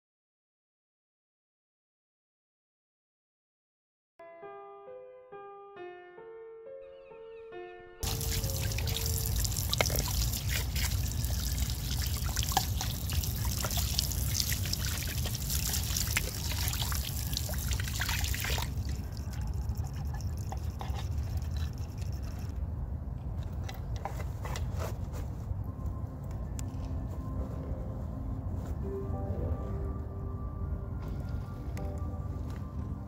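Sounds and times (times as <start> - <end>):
tap water splashing into trough: 8.0 - 18.8.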